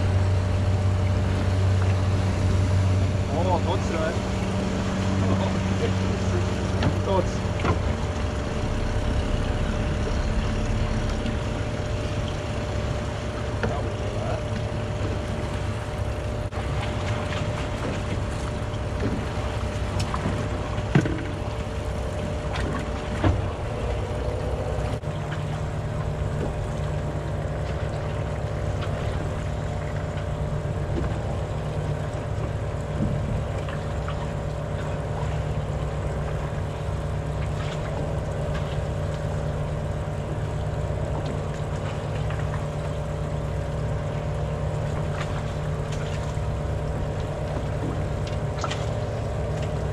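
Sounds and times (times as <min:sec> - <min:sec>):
motorboat engine droning: 0:00.0 - 0:49.9.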